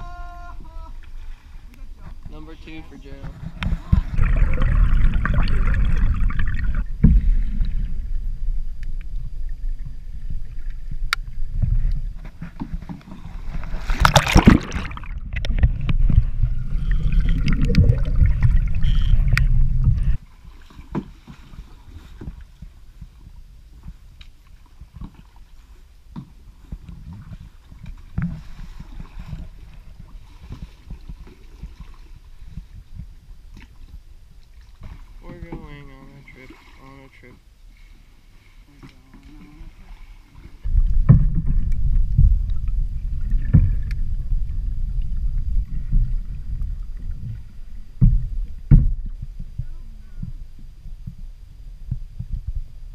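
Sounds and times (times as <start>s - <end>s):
muffled underwater rush: 0.0s - 23.8s, 34.7s - 52.9s
water splash: 2.6s - 9.9s, 10.6s - 22.5s
small clicks underwater: 16.9s - 19.5s.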